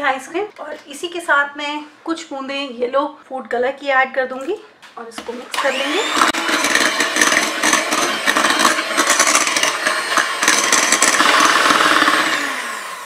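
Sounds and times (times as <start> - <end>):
electric hand mixer running: 5.5 - 13.0.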